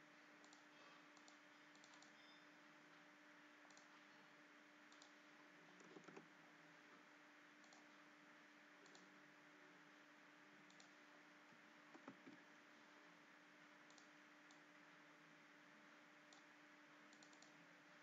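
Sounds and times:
faint steady hum: 0.0s - 18.0s
mouse and keyboard clicks: 0.4s - 2.4s, 3.7s - 3.9s, 4.9s - 5.2s, 5.8s - 6.3s, 7.6s - 7.9s, 8.8s - 9.1s, 10.7s - 11.0s, 13.9s - 14.7s, 17.1s - 17.6s.

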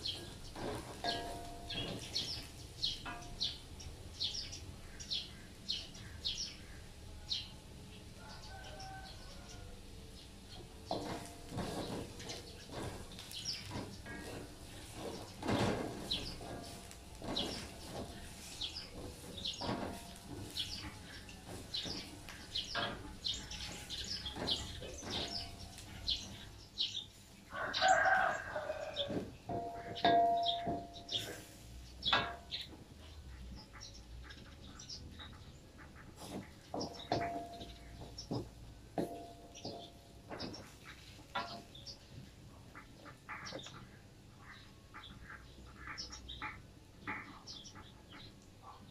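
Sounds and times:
wooden spatula scraping a wok: 0.0s - 2.5s, 10.9s - 26.4s, 31.1s - 31.8s, 36.2s - 38.1s.

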